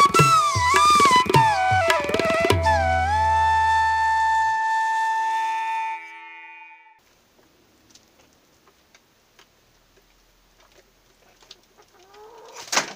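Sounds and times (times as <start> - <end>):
background music: 0.0 - 6.4.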